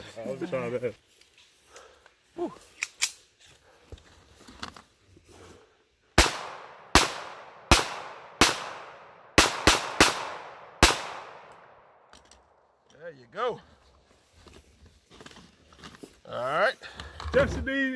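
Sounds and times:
pistol shots echoing: 0:06.2 - 0:11.8.

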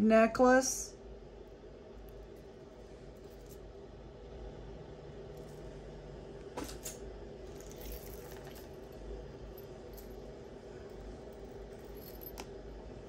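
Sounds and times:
low room hum: 0:00.0 - 0:13.0
jewelry clicking and rustling: 0:02.0 - 0:03.7, 0:05.3 - 0:05.7, 0:06.8 - 0:13.0.

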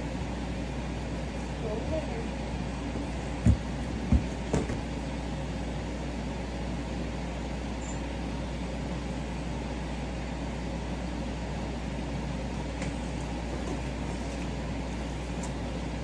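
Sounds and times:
room noise hum: 0:00.0 - 0:16.0
dull thumps: 0:03.4 - 0:04.9
footsteps on a wooden floor: 0:03.4 - 0:04.9.

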